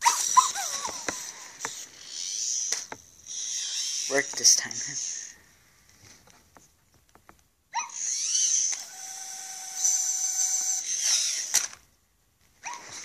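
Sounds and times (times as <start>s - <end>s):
robot toy electronic sound effects: 0.0s - 5.3s
motors whirring: 0.0s - 5.4s, 7.8s - 11.8s.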